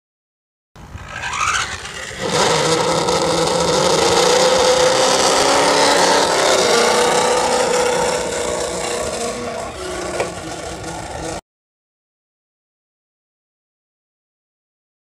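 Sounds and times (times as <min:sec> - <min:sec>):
low hum: 0:00.8 - 0:11.4.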